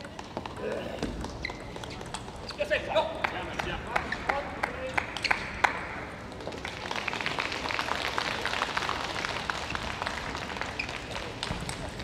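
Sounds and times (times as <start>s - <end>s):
spectators applauding: 3.2s - 12.0s.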